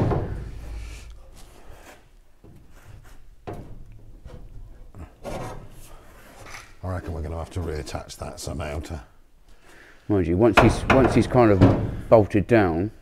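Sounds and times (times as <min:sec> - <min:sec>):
faint knocks and handling noises: 0:00.0 - 0:08.0.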